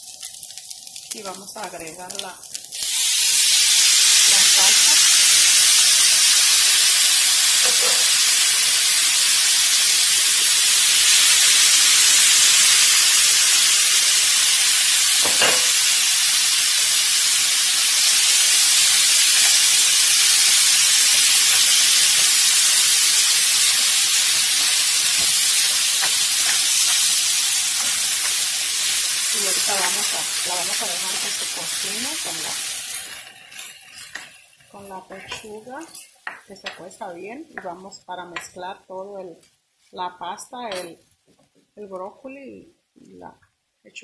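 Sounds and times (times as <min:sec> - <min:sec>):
sauce sizzling in frying pan: 0:00.0 - 0:37.8.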